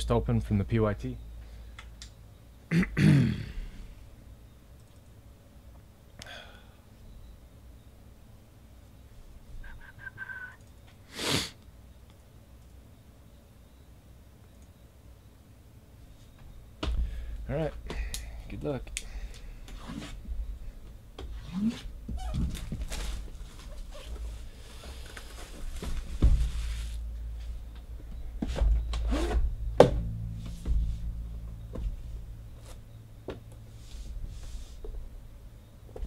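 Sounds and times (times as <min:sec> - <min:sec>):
steady low hum: 0:00.0 - 0:36.0
knocks: 0:28.1 - 0:32.2.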